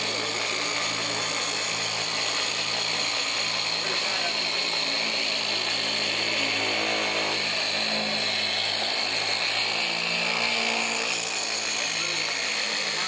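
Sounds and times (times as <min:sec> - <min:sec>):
electric polisher whirring: 0:00.0 - 0:13.0.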